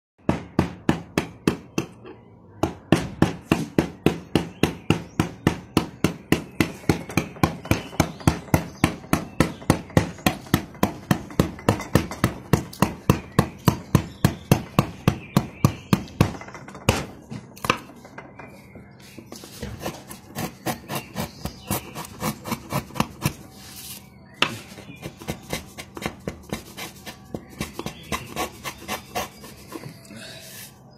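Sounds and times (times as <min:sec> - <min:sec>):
mallet striking chisel into wood: 0:00.2 - 0:02.0, 0:02.6 - 0:17.9.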